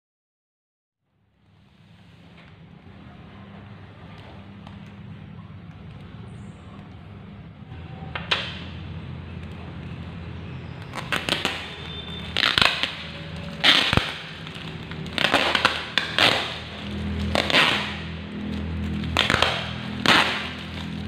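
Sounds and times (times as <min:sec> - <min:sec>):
plastic wrap crinkling: 0:08.9 - 0:21.0
packing tape ripping: 0:09.3 - 0:21.0.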